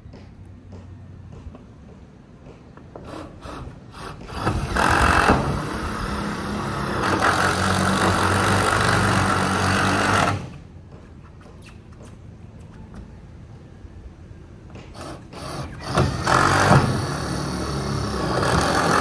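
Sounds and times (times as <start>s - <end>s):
power drill driving screw into metal: 15.0s - 19.0s.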